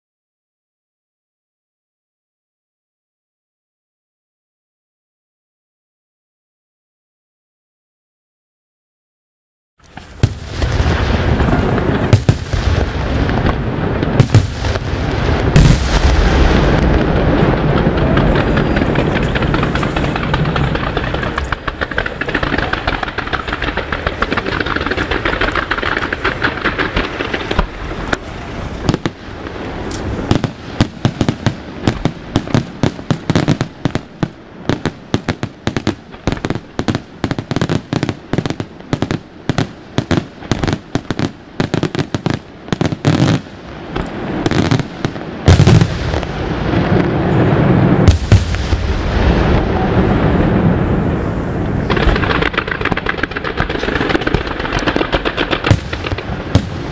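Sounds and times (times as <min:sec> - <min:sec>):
fireworks crackling and hissing: 0:09.8 - 0:56.9
fireworks sharp bangs: 0:09.8 - 0:56.9
fireworks shell bursts booming: 0:09.9 - 0:39.2, 0:51.6 - 0:56.9.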